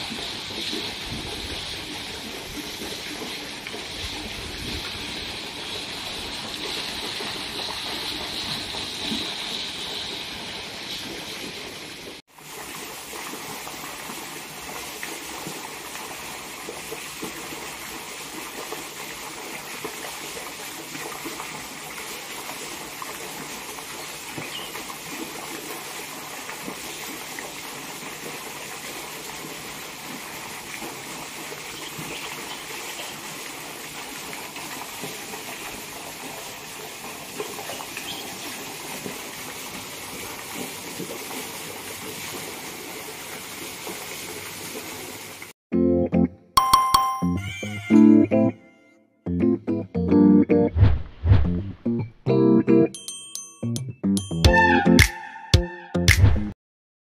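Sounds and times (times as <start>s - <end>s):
fountain water splashing into pool: 0.0s - 45.6s.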